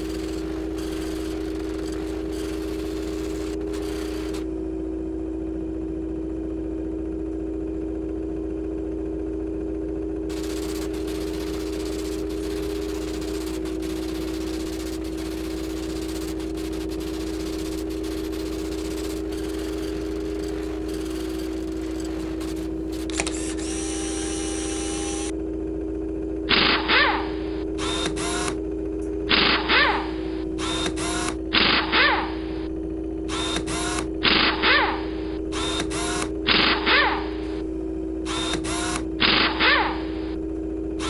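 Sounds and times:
electronic hum and hiss: 0.0 - 4.7, 10.2 - 25.4.

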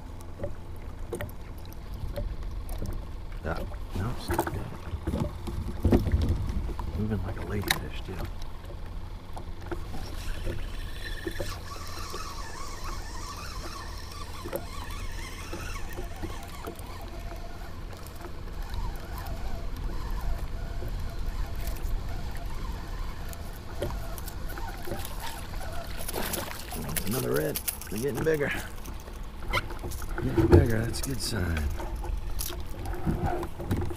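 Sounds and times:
small waves lapping against hull: 0.0 - 33.9
wind rumble on microphone: 3.8 - 8.2
light clicks and faint squeaks: 6.7 - 33.9.

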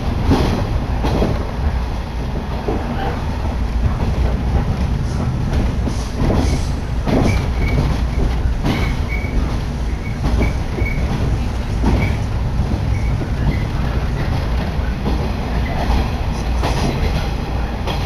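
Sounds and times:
train rumble with wheel clatter: 0.0 - 18.0
train wheels squealing: 7.2 - 11.1, 11.9 - 12.3, 12.9 - 13.6.

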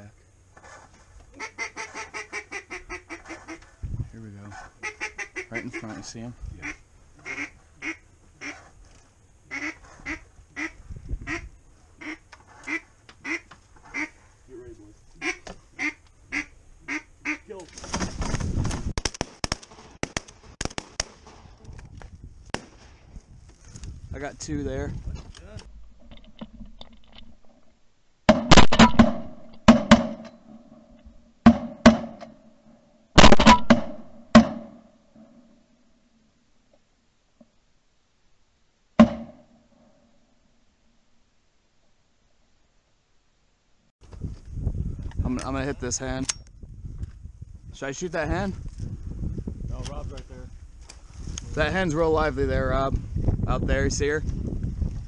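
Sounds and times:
duck quacking: 1.4 - 3.7, 4.5 - 8.6, 9.5 - 14.2, 15.2 - 17.5
shotgun blasts: 19.0 - 21.4, 22.5 - 23.0, 28.3 - 30.2, 33.2 - 34.8.

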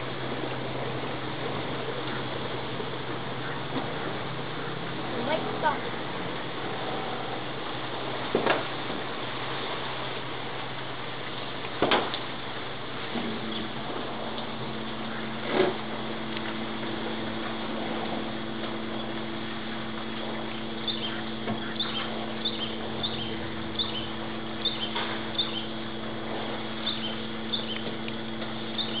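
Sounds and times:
steady low hum: 0.0 - 29.0
small bird chirping: 20.8 - 25.7, 26.8 - 27.9, 28.7 - 29.0.

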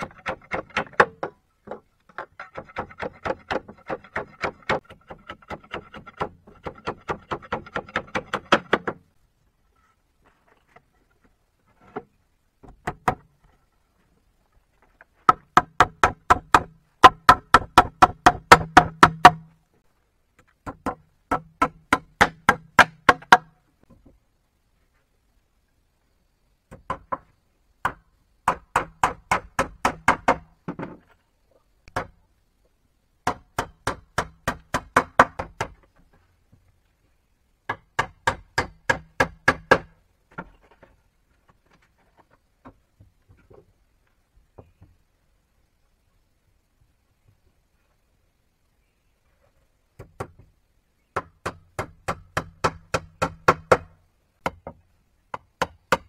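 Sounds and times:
tool striking wood: 15.3 - 19.5, 37.7 - 39.9, 51.2 - 56.0.

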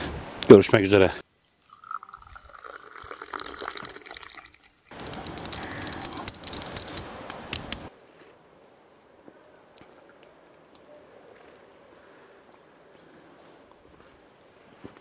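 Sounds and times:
tea pouring into glass: 1.6 - 4.7
teaspoon clinking in glass: 4.9 - 7.9.

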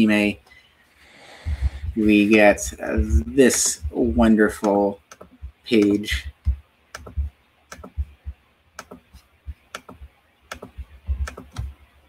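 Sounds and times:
keyboard and mouse clicks: 4.6 - 11.8.

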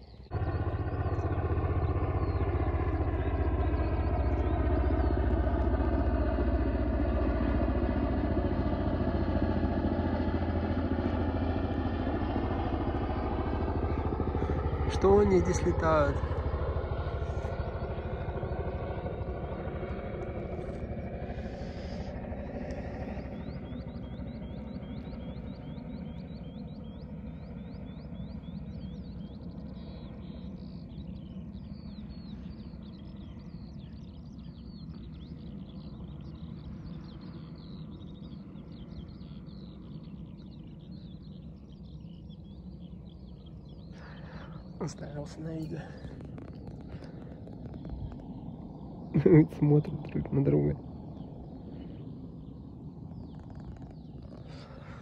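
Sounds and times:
low background rumble: 0.0 - 55.0
small birds chirping: 0.0 - 55.0.

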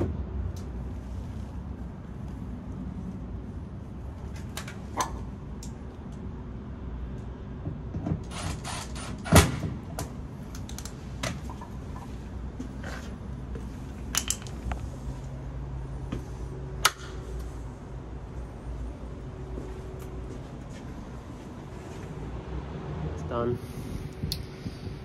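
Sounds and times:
tools clicking and knocking: 14.1 - 14.8.

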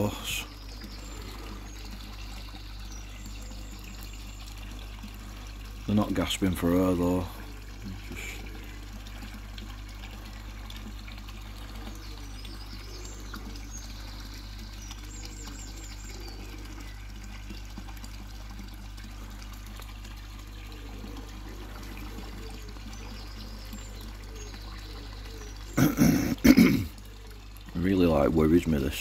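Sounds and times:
pond water trickling: 0.0 - 29.0.

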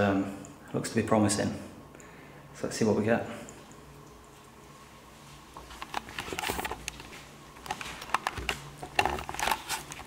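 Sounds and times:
camera handling noise: 7.7 - 10.0.

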